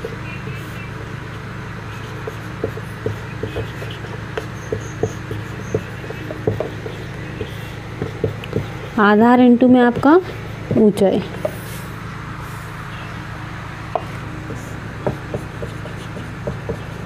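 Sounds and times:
marker writing on whiteboard: 0.0s - 8.8s, 14.0s - 17.0s
steady low hum: 0.0s - 17.0s.

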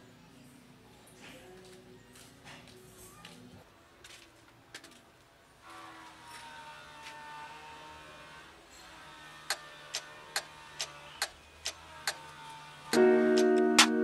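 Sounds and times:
loud piano chord: 13.0s - 14.0s.

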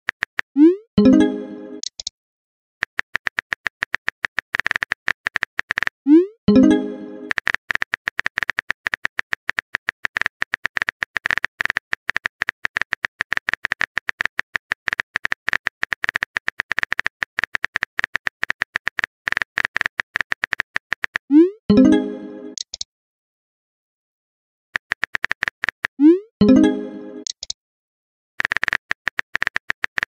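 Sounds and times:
phone keyboard clicks: 1.8s - 2.1s, 2.8s - 6.0s, 7.3s - 21.2s, 24.8s - 26.0s, 27.2s - 27.6s, 28.4s - 30.0s.

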